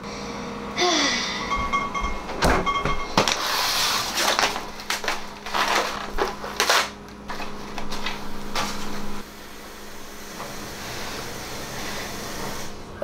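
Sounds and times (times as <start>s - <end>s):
plastic wrap crackling: 3.2s - 9.0s.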